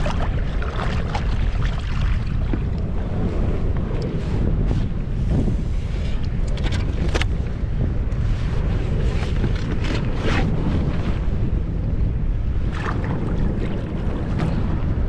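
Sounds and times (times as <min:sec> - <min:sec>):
water splashes: 0:00.0 - 0:03.2, 0:12.5 - 0:15.0
water lapping: 0:00.0 - 0:07.2, 0:12.5 - 0:15.0
wind buffeting microphone: 0:00.0 - 0:15.0.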